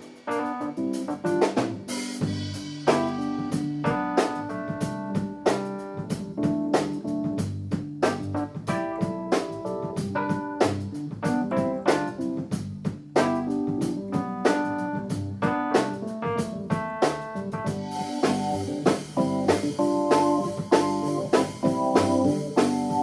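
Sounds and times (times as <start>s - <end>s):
drum kit beat: 0.0s - 23.0s
electric keyboard: 0.0s - 23.0s
electric guitar: 8.0s - 23.0s.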